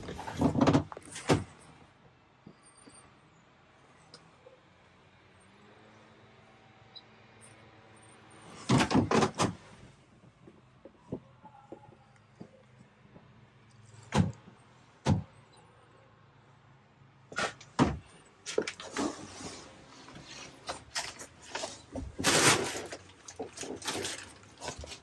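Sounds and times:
clicks and bumps of panels: 0:00.0 - 0:01.6, 0:08.6 - 0:09.6, 0:14.1 - 0:15.3, 0:17.4 - 0:19.2
scraping rustle: 0:18.4 - 0:25.0.

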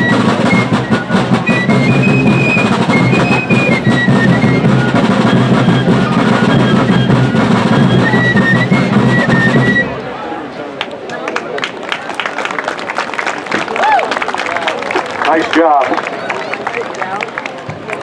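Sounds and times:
snare drumming: 0:00.0 - 0:09.9
fifes playing a tune: 0:00.0 - 0:10.1.

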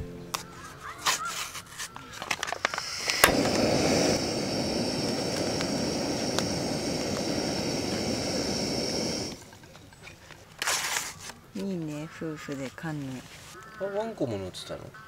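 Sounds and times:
gas stove burner hissing: 0:02.1 - 0:09.7
stove ignition click: 0:02.3 - 0:09.4.

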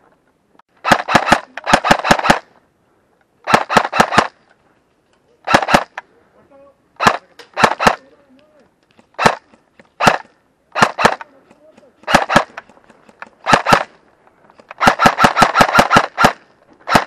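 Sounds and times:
airsoft rifle shots: 0:00.8 - 0:02.6, 0:03.4 - 0:04.4, 0:05.4 - 0:06.0, 0:07.0 - 0:08.2, 0:09.2 - 0:14.0, 0:14.6 - 0:17.0.

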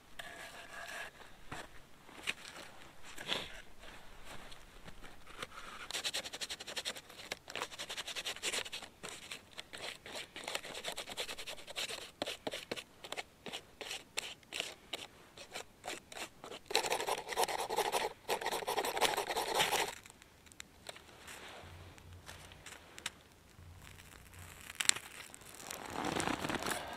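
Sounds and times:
bark being scraped by hand: 0:05.9 - 0:20.0.

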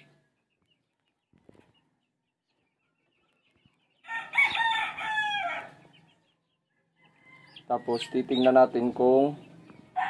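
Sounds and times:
chicken calling: 0:03.6 - 0:08.9.

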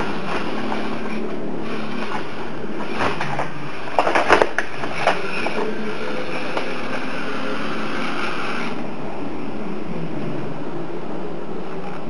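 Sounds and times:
toy car motors whining: 0:00.0 - 0:08.8.

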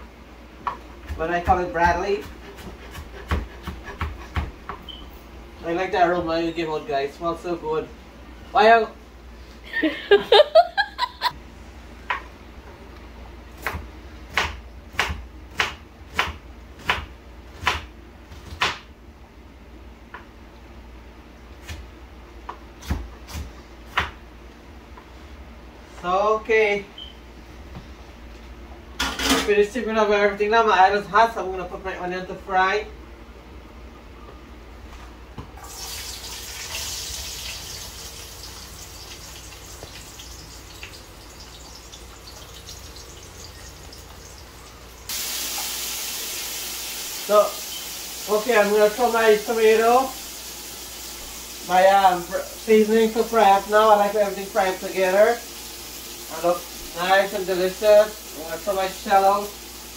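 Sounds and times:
knife chopping onion on wooden board: 0:00.6 - 0:04.8, 0:13.6 - 0:18.9
onion sizzling in hot oil: 0:35.6 - 0:59.9.

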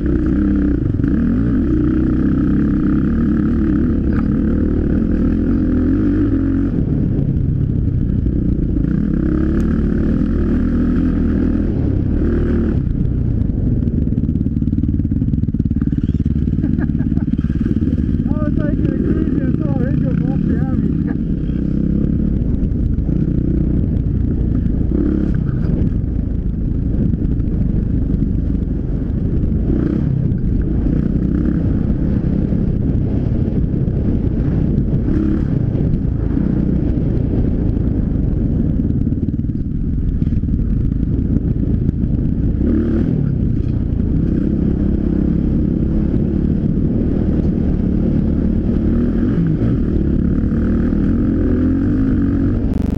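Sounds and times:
dirt bike engine running: 0:00.0 - 0:52.9.

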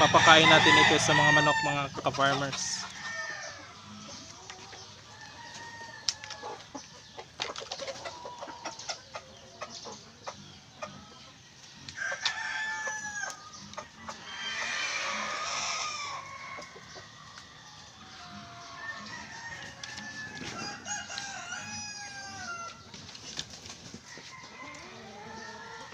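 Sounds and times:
chickens clucking: 0:00.0 - 0:25.9
harsh chicken call: 0:14.2 - 0:16.4.

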